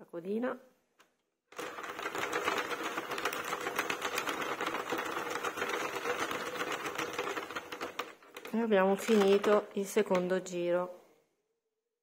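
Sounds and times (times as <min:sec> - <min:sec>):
knitting machine whirr: 0:01.5 - 0:10.2
knitting machine needles clattering: 0:01.6 - 0:10.4.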